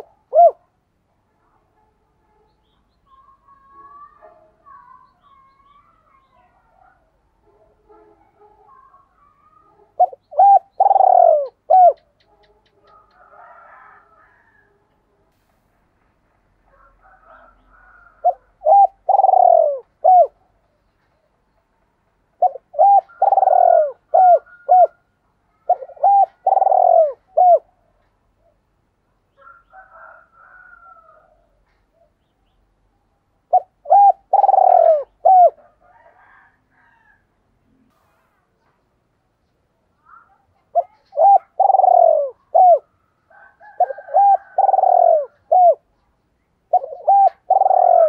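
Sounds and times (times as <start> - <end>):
dove cooing: 0.0 - 0.7, 8.3 - 14.6, 16.7 - 20.6, 22.4 - 28.6, 33.4 - 37.0, 40.1 - 46.0, 46.7 - 48.0
faint bird chirps: 1.4 - 7.2.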